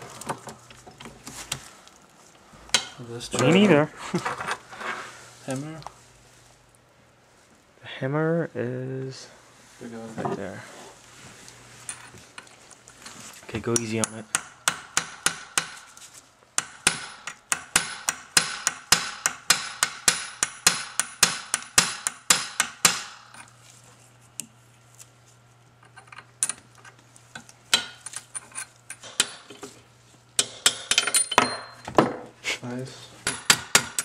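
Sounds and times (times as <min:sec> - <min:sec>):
hammer striking metal punch: 0:16.6 - 0:23.3, 0:33.2 - 0:34.0.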